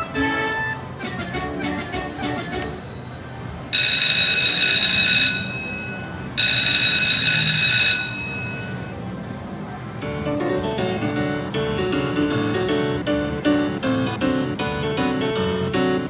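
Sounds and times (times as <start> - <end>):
electronic ringing tone: 3.7 - 9.0.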